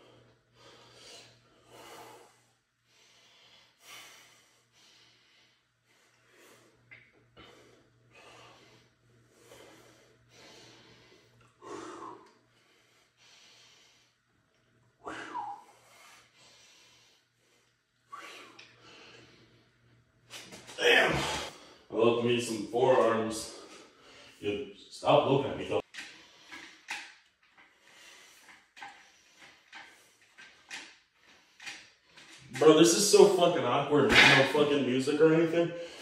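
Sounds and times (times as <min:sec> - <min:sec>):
man grunting: 0:20.8 - 0:21.5
man exhaling forcefully: 0:20.8 - 0:21.6.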